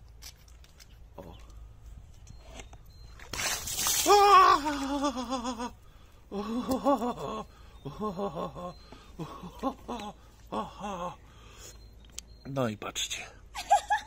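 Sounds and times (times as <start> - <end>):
water splashing: 3.3 - 5.0
man crying out: 4.0 - 11.2
man breathless laughter: 4.6 - 11.2.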